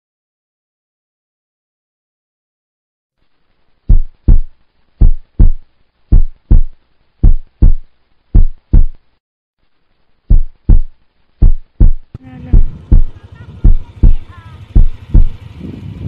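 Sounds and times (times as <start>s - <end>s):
heartbeat thumps: 3.9s - 9.0s, 10.3s - 15.6s.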